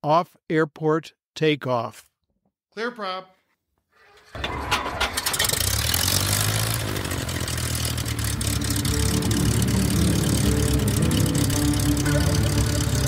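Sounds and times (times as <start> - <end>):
propeller engine starting: 4.4 - 13.0.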